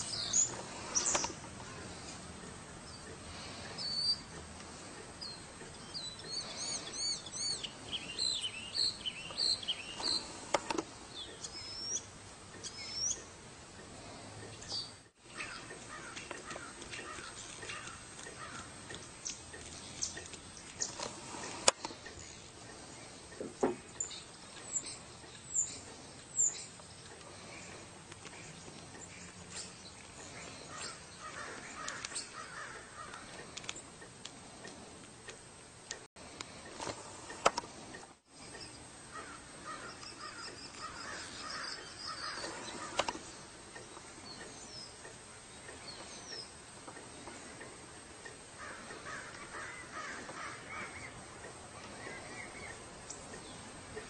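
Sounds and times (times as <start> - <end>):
high bird chirps: 3.7 - 4.3, 5.2 - 10.4
sharp clicks: 30.8 - 38.6, 40.0 - 49.4.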